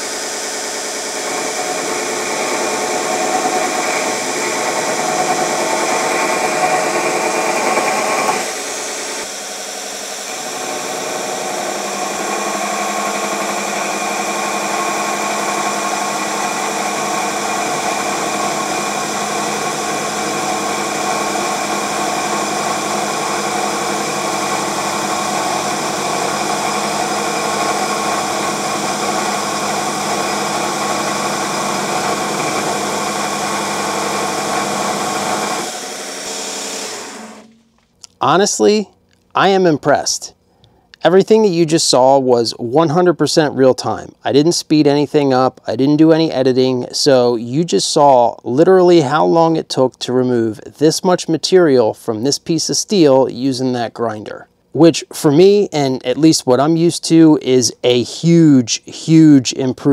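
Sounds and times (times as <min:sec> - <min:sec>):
abrasive belt grinding steel: 0:00.0 - 0:37.7
machine motor humming: 0:00.0 - 0:38.2.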